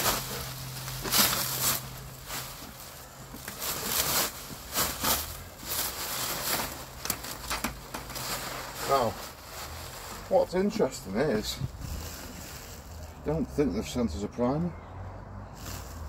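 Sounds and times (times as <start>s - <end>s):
plastic sheeting rustling: 0.0s - 13.4s, 15.6s - 16.0s.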